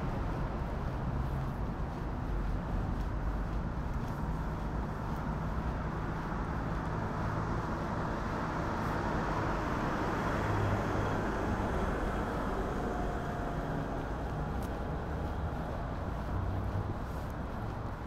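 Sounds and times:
tyre and engine noise: 0:00.0 - 0:18.0
vehicle passing: 0:06.3 - 0:18.0.

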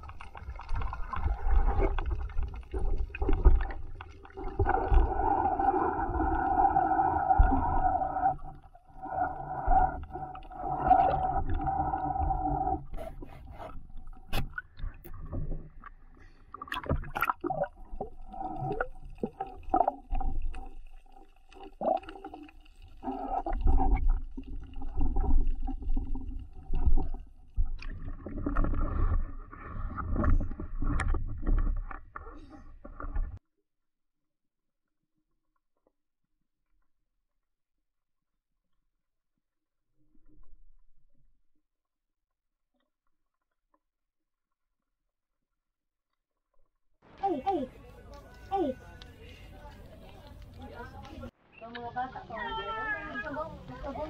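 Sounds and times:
underwater droning hum: 0:00.0 - 0:16.1.

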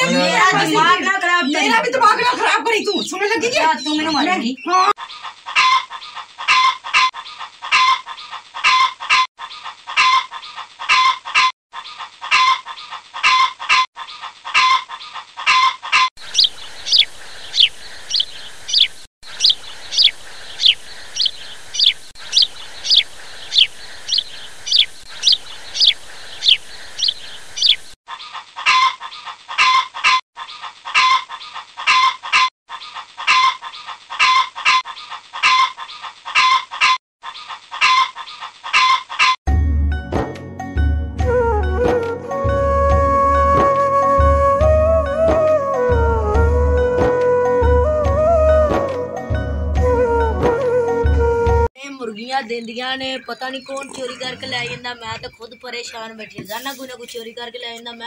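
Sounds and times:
chickens clucking: 0:00.0 - 0:39.4, 0:53.2 - 0:58.0
high falling peeps: 0:16.2 - 0:28.0.

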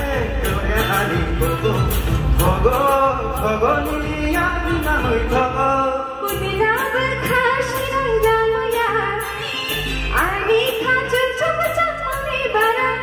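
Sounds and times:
man singing: 0:00.0 - 0:06.4
instrumental backing with beat: 0:00.0 - 0:12.8
woman singing: 0:06.2 - 0:09.4, 0:10.1 - 0:13.0.

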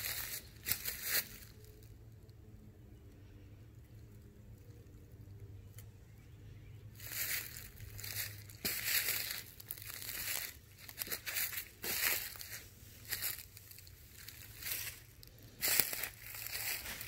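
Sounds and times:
footsteps crunching on dry leaves: 0:00.0 - 0:01.6, 0:07.0 - 0:17.0.

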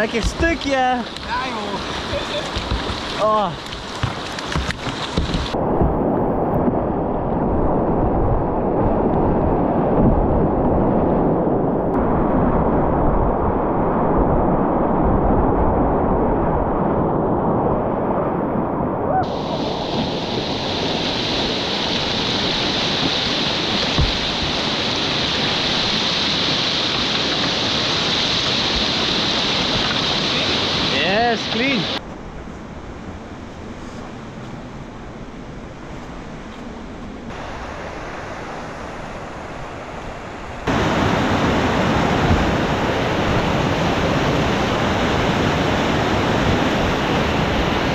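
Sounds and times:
river rapids rushing and splashing: 0:00.0 - 0:05.6, 0:19.2 - 0:32.0, 0:37.3 - 0:47.9.

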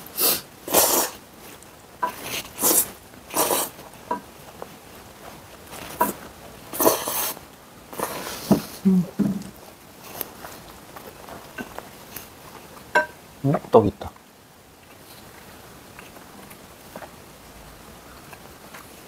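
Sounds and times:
noodles being slurped: 0:00.1 - 0:01.2, 0:02.1 - 0:03.9, 0:05.9 - 0:08.8.

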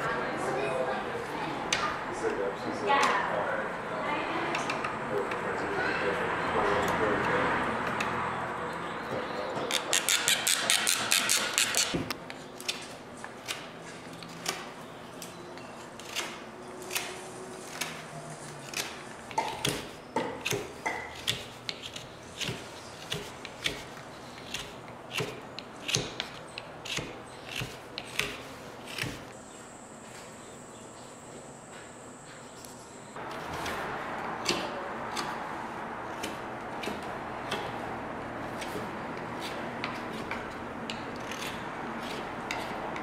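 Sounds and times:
knife shaving wood: 0:21.2 - 0:29.3, 0:38.4 - 0:43.0.

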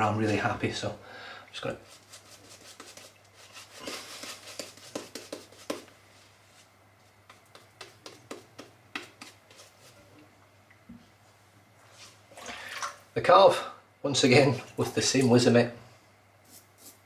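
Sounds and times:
wet shaving brush strokes: 0:01.7 - 0:05.9, 0:06.5 - 0:10.0, 0:16.4 - 0:17.0.

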